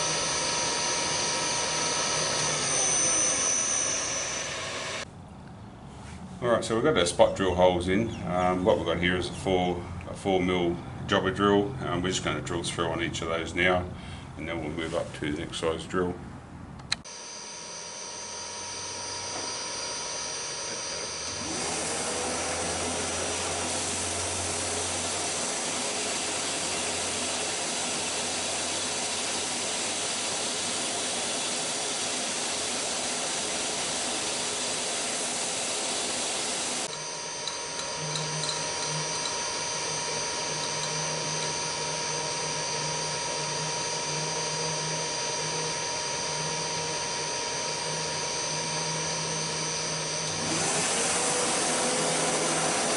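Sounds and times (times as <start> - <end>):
drill boring through cast iron: 0.0 - 5.1, 17.0 - 52.9
milling machine motor whine: 0.0 - 5.1, 17.0 - 52.9.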